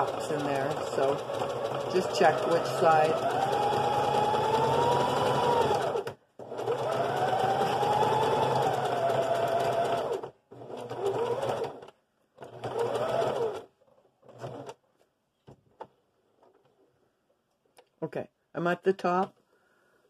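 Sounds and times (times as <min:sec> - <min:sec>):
sewing machine stitching: 0:00.0 - 0:14.8.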